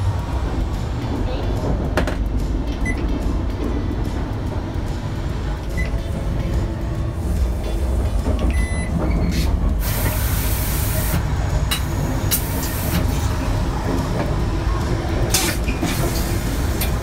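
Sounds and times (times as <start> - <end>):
train rumbling: 0.0 - 17.0.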